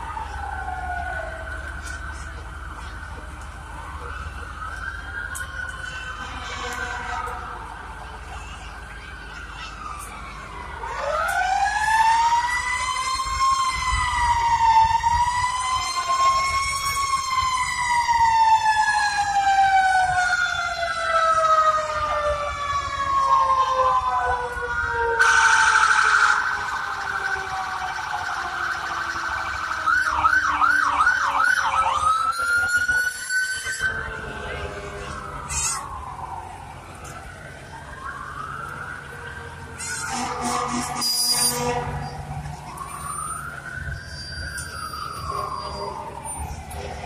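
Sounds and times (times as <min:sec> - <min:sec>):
sirens wailing: 0:00.0 - 0:47.0
siren fast warbling yelp: 0:39.7 - 0:46.7
loud horn blast: 0:40.1 - 0:42.2.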